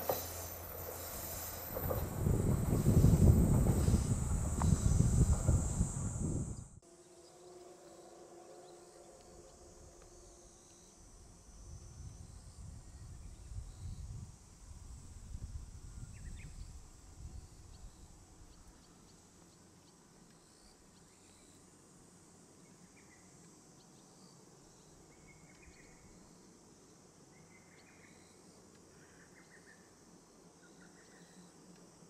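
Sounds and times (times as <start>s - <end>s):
high drone of insects: 0.0s - 32.0s
low rumble: 0.4s - 6.8s.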